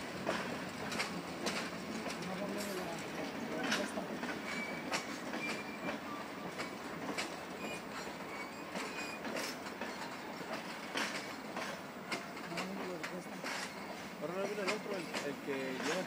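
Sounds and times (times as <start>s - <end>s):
train rumbling over bridge: 0.0s - 16.0s
wheels clacking over rail joints: 0.0s - 16.0s
high wheel squeals: 4.4s - 6.7s, 7.5s - 10.1s.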